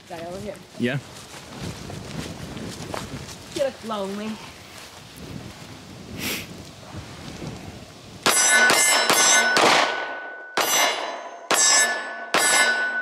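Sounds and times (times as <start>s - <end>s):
pistol shots: 8.3s - 13.0s
steel target clanging: 8.3s - 13.0s.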